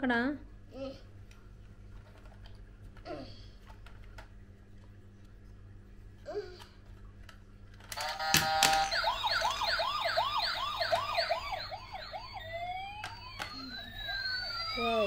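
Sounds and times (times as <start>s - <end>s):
electronic siren warbling: 8.0s - 15.0s
rising electronic wail: 8.8s - 15.0s.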